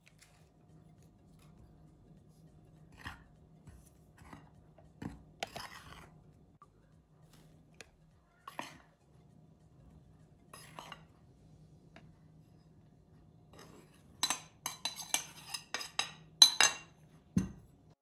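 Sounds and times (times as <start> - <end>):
metal spoon clinking against bowls: 13.5 - 17.0.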